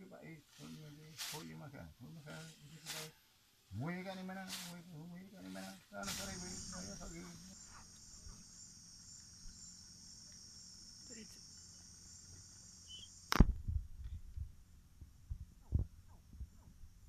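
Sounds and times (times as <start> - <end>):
night insects chorus: 0.0 - 13.5.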